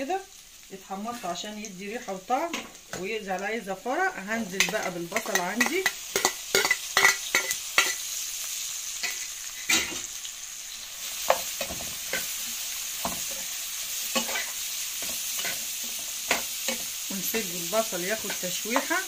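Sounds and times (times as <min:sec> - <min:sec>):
onions sizzling in frying pan: 0:00.0 - 0:19.0
metal spoon scraping pan: 0:04.4 - 0:08.0, 0:14.1 - 0:16.9.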